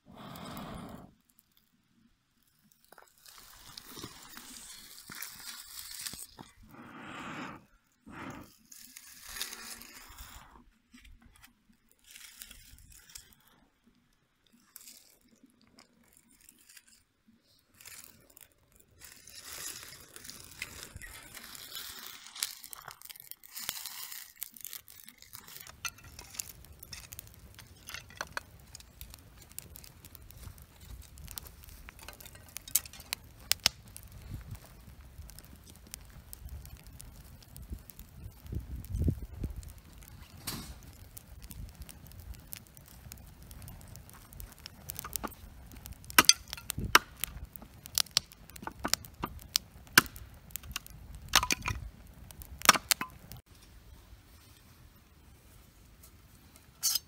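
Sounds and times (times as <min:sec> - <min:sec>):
fire crackling and popping: 0:00.0 - 0:57.0
dry leaves and twigs crunching: 0:02.6 - 0:06.7, 0:08.5 - 0:10.4, 0:11.0 - 0:13.4, 0:17.7 - 0:57.0.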